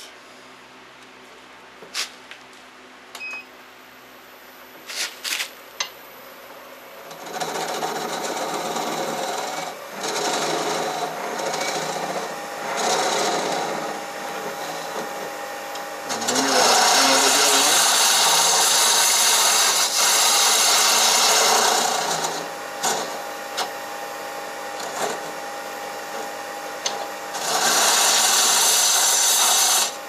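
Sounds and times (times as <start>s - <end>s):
lathe tool scraping wood: 7.1s - 30.0s.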